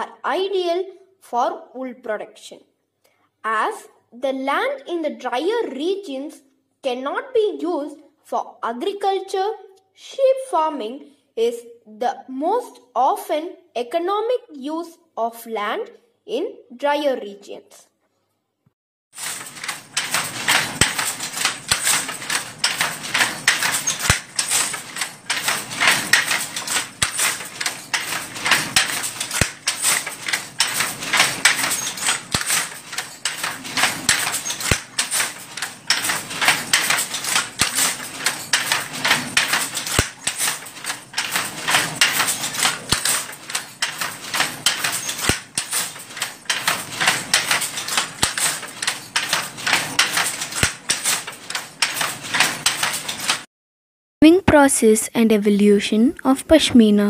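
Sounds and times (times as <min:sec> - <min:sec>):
wooden handloom clattering: 0:19.1 - 0:53.5.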